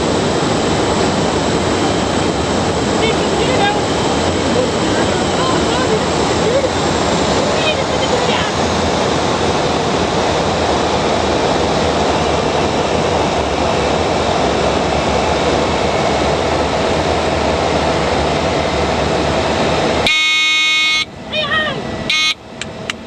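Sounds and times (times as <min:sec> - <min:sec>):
airflow rushing: 0:00.0 - 0:20.1
turboprop engine: 0:00.0 - 0:23.0
loud steady buzzing tone: 0:17.7 - 0:22.9.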